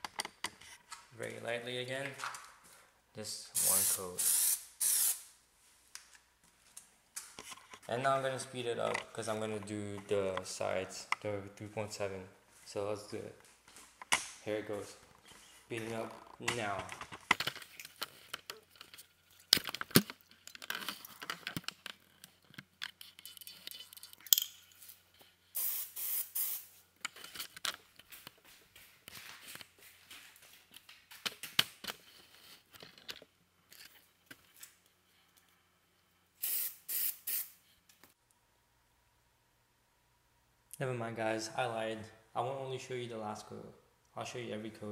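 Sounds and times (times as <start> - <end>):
aerosol can spraying bursts: 3.6 - 5.3, 25.6 - 26.7, 36.4 - 37.6.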